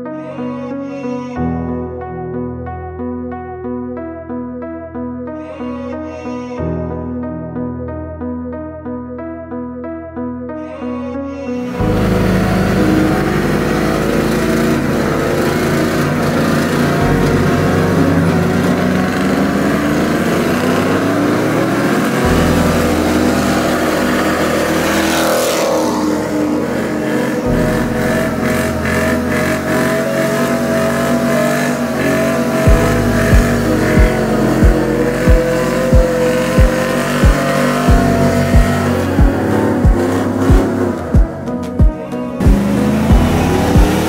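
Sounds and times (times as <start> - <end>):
engines revving hard: 11.7 - 44.0
music with deep bass line: 11.7 - 44.0
tyres spinning: 11.8 - 44.0
kick-drum beat: 32.7 - 44.0.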